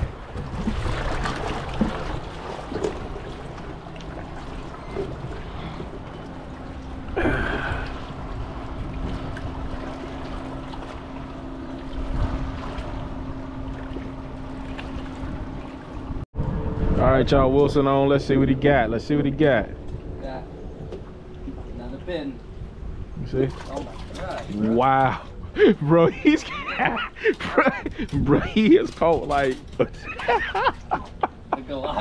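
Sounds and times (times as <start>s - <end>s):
wind on microphone: 0.0s - 3.6s, 4.8s - 26.3s
steady low hum: 0.0s - 32.0s
water noise: 0.0s - 32.0s.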